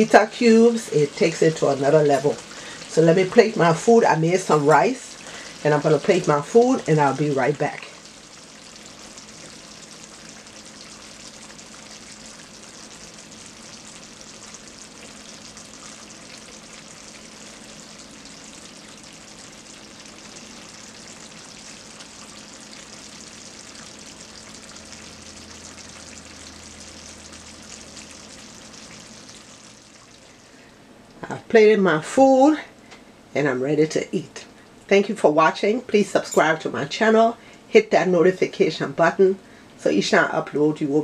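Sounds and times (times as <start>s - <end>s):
food sizzling in a pan: 0.0s - 30.7s.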